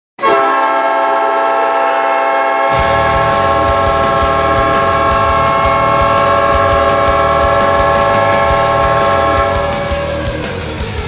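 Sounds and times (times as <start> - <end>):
air-raid siren: 0.2 - 10.6
multi-tone air horn blast: 0.2 - 10.7
low thumps: 2.8 - 10.9.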